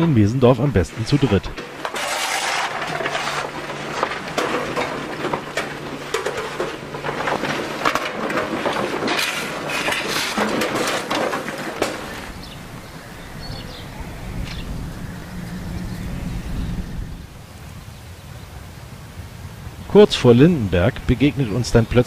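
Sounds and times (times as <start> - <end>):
coal lumps clattering: 0.2 - 13.2
shovel scraping coal: 1.0 - 12.4
low rumble: 12.2 - 19.8.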